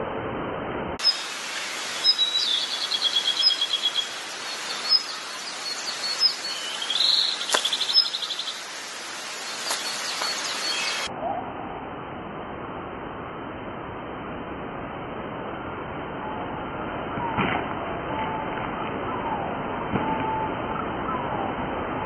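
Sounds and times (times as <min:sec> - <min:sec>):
bird trills: 0:01.0 - 0:01.3, 0:01.9 - 0:08.8
birds chirping: 0:01.0 - 0:11.1.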